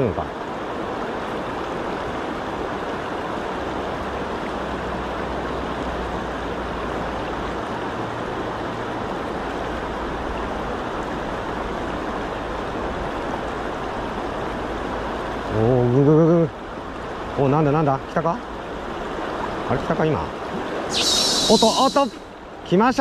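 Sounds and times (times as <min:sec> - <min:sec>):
river rushing over riffle: 0:20.4 - 0:23.0.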